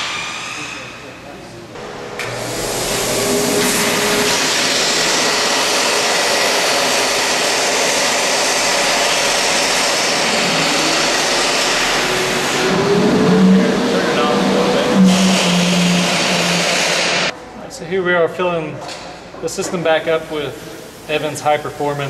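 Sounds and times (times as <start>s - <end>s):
shop-vac blower running: 0.0s - 17.4s
air rushing out of drain valve: 2.2s - 17.3s.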